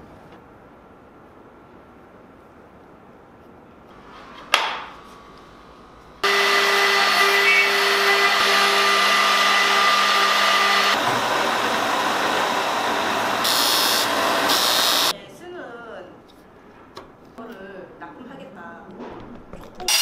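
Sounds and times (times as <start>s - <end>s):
electric router whining: 6.2s - 15.1s.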